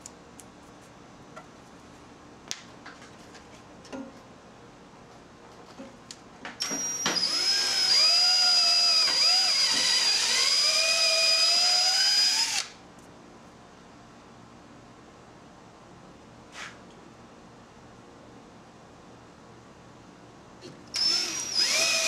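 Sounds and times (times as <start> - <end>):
cordless drill whining: 6.6 - 12.7, 20.9 - 22.0.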